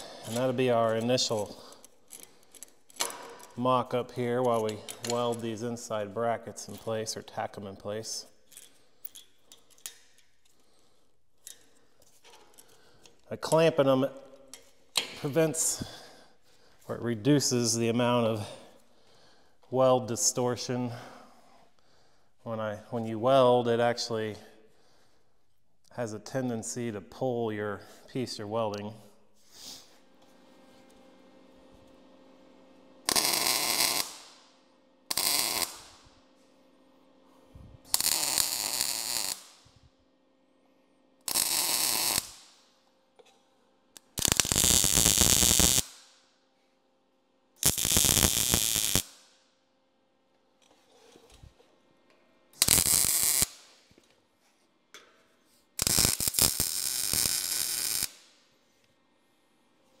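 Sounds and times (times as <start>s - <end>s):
welding arc bursts: 33.0s - 34.4s, 35.1s - 36.1s, 37.9s - 39.6s, 41.3s - 42.5s, 44.0s - 46.0s, 47.6s - 49.2s, 52.6s - 53.7s, 55.8s - 58.2s.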